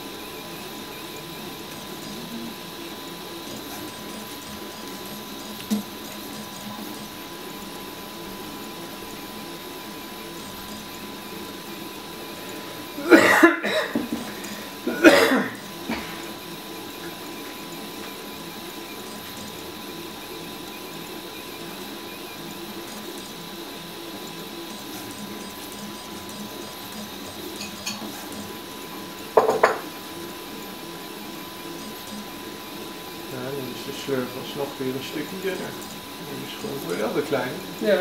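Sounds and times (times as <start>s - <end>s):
three d printer running: 0.0s - 38.0s
person coughing: 13.0s - 14.1s, 14.8s - 16.2s.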